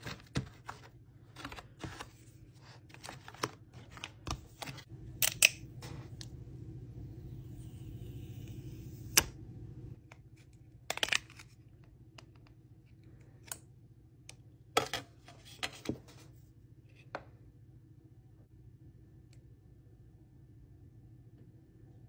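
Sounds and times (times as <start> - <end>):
low background hum: 0.0 - 22.0
device handling: 2.9 - 6.4.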